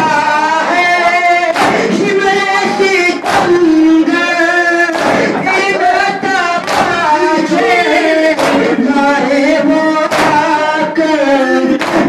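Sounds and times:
person singing lament: 0:00.0 - 0:12.0
hands striking chests: 0:01.5 - 0:01.9, 0:03.2 - 0:03.8, 0:04.9 - 0:05.4, 0:06.6 - 0:07.2, 0:08.4 - 0:08.8, 0:10.1 - 0:10.6, 0:11.8 - 0:12.0.

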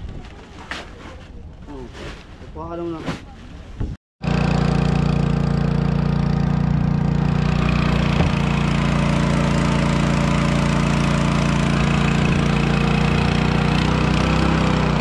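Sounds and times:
boat engine running: 0:04.2 - 0:15.0.

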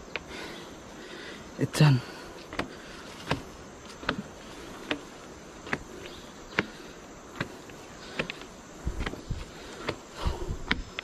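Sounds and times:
insects buzzing: 0:00.0 - 0:11.0
footsteps on wooden stairs: 0:02.4 - 0:11.0.

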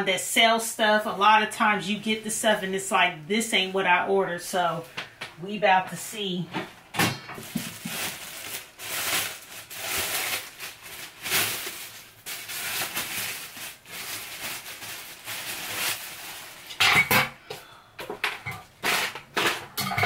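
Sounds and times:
packaging rustling and scraping: 0:07.4 - 0:16.8, 0:18.2 - 0:20.0.

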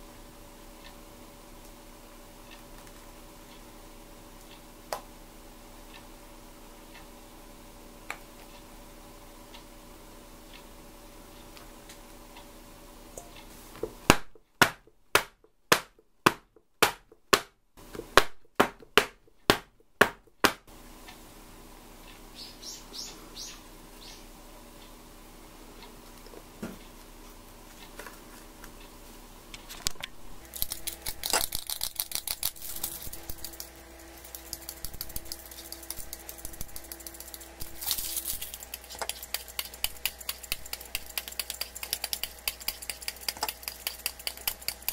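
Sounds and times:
knife scraping chocolate: 0:30.4 - 0:44.9.

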